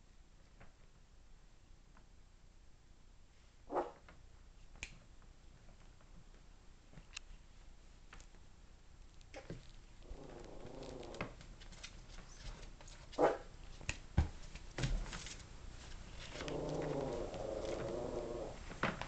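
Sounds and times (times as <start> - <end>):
puppies play-growling: 10.0 - 11.4, 16.1 - 18.8.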